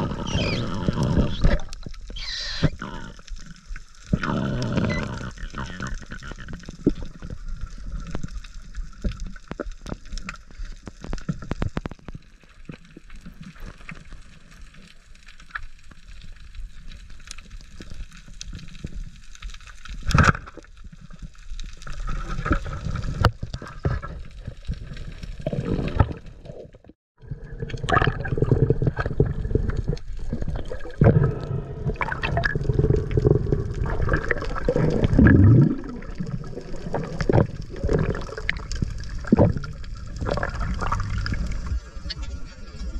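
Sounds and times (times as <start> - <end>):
sharp underwater clicks and crackles: 0.0 - 42.9
water rushing and gurgling: 27.3 - 42.9.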